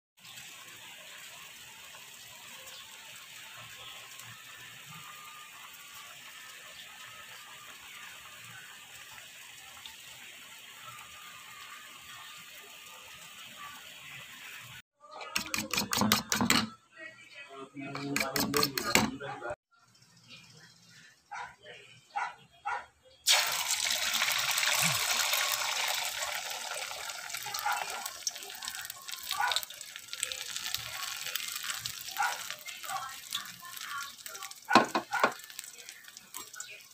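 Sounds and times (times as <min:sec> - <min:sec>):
water boiling in a pot: 0:00.2 - 0:14.8, 0:23.3 - 0:36.9
egg sizzling in hot oil: 0:00.2 - 0:14.9, 0:23.3 - 0:36.9.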